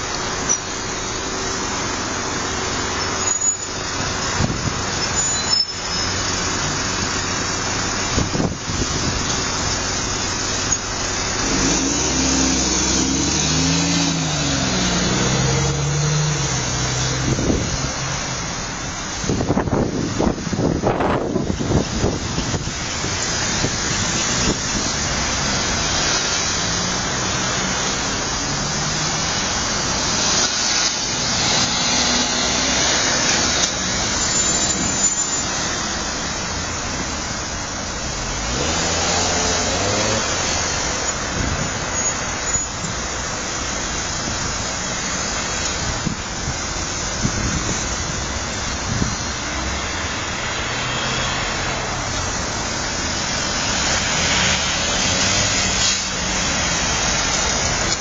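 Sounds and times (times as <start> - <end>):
cars passing: 0.0 - 58.0
engine revving pulling away: 11.0 - 18.3, 23.3 - 34.2, 38.1 - 41.9, 49.7 - 58.0.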